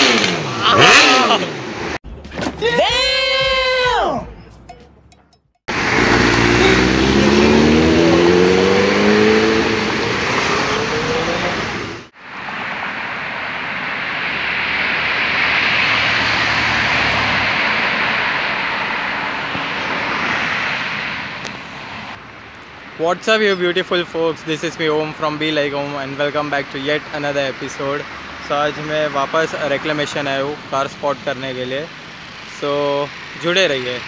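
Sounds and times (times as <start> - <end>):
road traffic rushing past: 0.0 - 2.0, 5.7 - 34.0
superbike engine accelerating: 0.0 - 2.0, 5.7 - 12.1.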